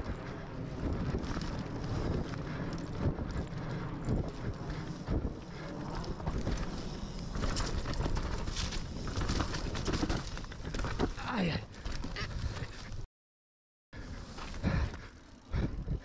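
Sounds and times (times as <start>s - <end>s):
wind buffeting microphone: 0.0s - 11.0s
bike knocks and rattles: 0.2s - 11.2s.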